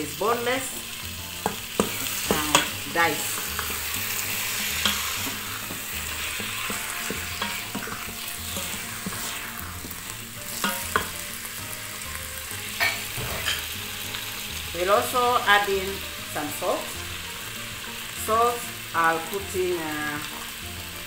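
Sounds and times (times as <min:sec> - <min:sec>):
chicken sizzling in hot oil: 0:00.0 - 0:21.0
wooden spoon scraping pot: 0:01.4 - 0:11.3.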